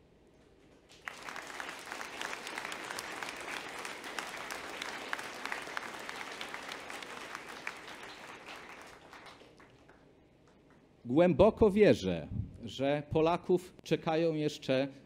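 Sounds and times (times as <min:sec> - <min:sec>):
audience applauding: 0:00.9 - 0:10.8.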